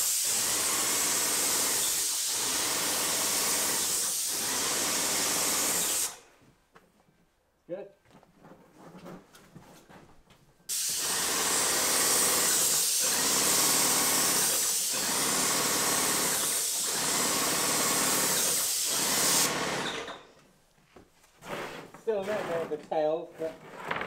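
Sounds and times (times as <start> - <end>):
spray gun hissing: 0.0 - 2.7, 10.7 - 19.6.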